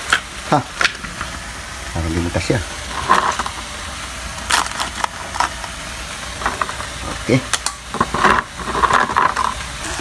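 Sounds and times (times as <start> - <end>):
shrimp frying in a pan: 0.0 - 10.0
crabs scraping plastic tub: 8.0 - 9.6.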